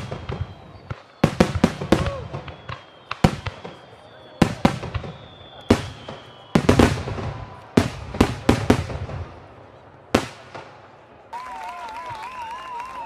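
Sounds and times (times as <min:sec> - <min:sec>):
firework crackle: 0:00.0 - 0:09.2.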